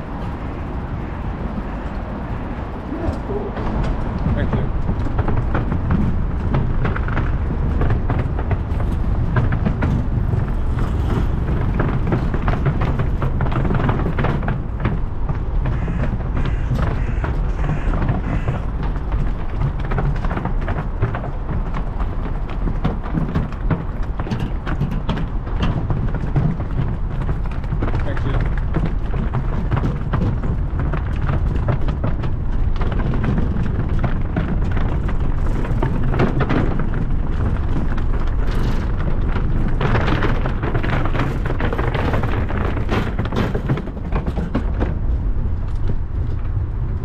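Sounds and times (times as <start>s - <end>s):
bike rattling: 0.0s - 47.0s
bike tyres crunching on gravel: 0.0s - 47.0s
steady low rumble: 0.0s - 47.0s.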